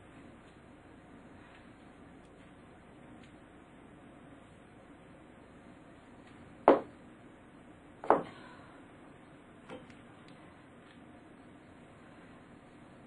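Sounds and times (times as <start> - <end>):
shoe knocking against floor: 6.7 - 6.9.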